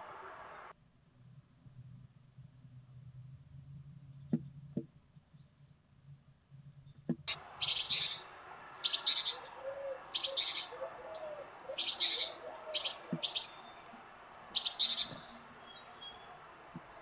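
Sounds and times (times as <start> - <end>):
high-pitched bird calls: 7.3 - 16.4.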